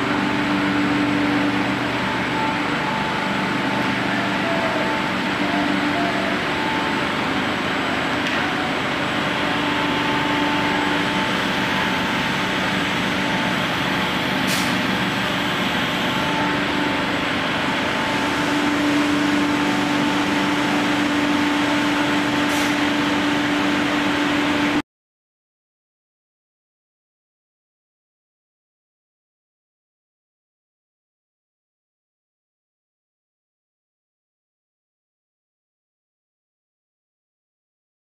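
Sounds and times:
extrusion machinery drone: 0.0s - 24.8s.

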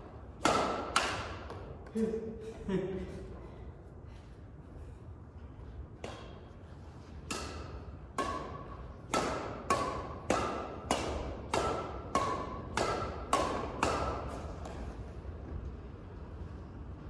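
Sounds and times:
rackets striking shuttlecock: 0.3s - 1.9s, 6.0s - 15.1s.

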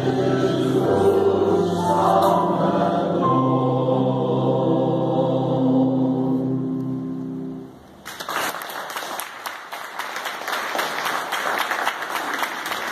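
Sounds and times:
choir holding a chord: 0.0s - 7.7s
audience applause: 8.0s - 12.9s.

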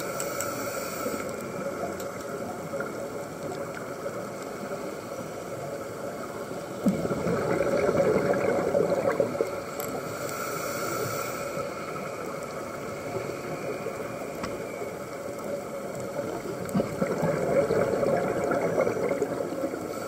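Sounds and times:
steady hiss of water: 0.0s - 20.0s
exhaled bubbles gurgling underwater: 1.3s - 9.8s, 11.6s - 20.0s.

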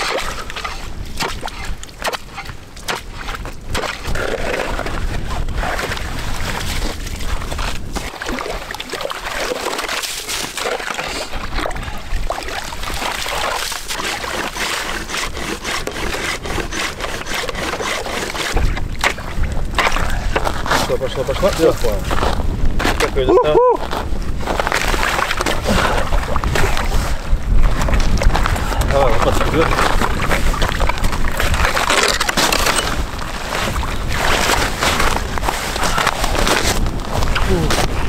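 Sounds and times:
water sloshing: 0.0s - 22.1s, 24.6s - 38.0s
saw cutting through ice: 13.3s - 18.7s.

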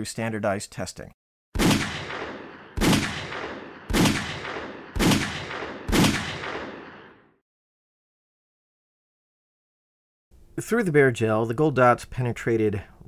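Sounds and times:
pistol shots with echo: 1.6s - 7.3s.

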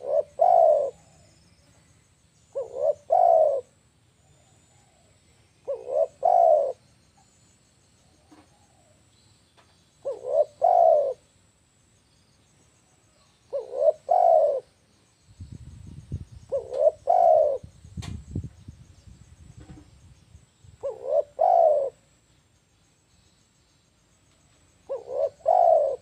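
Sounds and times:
dove cooing: 0.0s - 1.5s, 2.5s - 6.8s, 10.0s - 11.3s, 13.5s - 14.8s, 16.5s - 17.8s, 20.8s - 22.1s, 24.8s - 26.0s.

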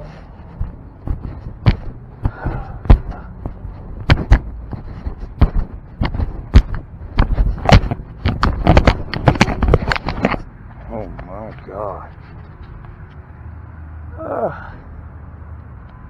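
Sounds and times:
sharp knocks and thumps: 0.4s - 11.6s.

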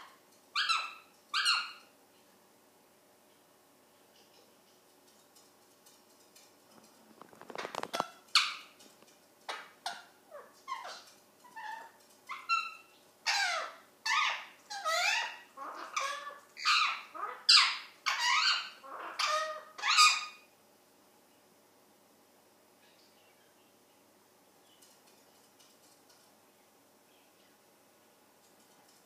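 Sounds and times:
parrot screeching: 0.6s - 1.9s, 9.5s - 20.5s.

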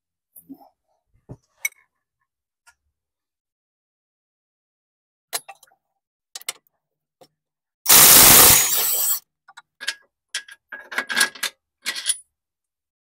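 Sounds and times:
cordless power tool whirring: 7.9s - 9.2s.

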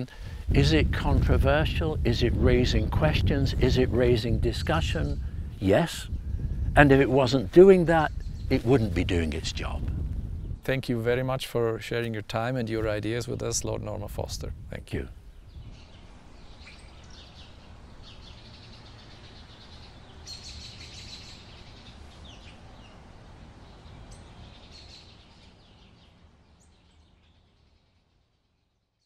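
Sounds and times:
birds chirping: 0.0s - 29.0s
low outdoor background noise: 0.0s - 29.0s.

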